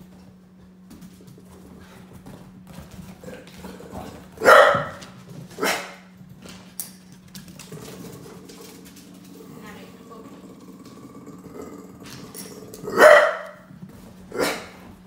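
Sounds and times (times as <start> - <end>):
dog barking: 4.4 - 5.0, 5.6 - 6.0, 12.9 - 13.7, 14.3 - 14.7.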